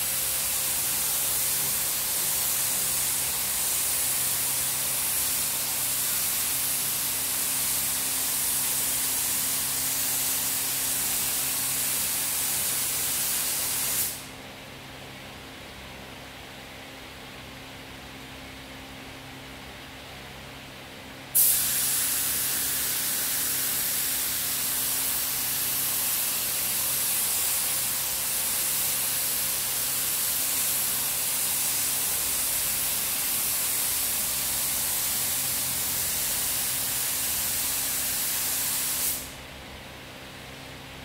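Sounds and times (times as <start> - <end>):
spray gun hissing: 0.0 - 14.3, 21.4 - 39.4.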